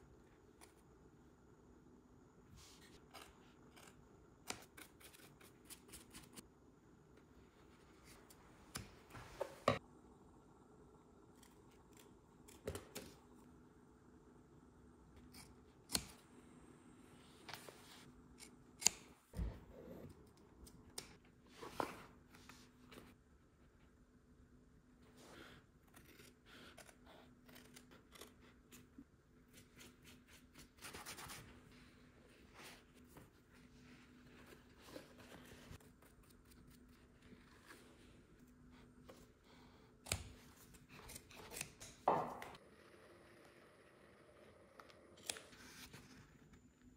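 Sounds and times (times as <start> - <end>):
scissors snipping material: 15.2 - 16.2, 18.4 - 19.2, 40.0 - 42.0.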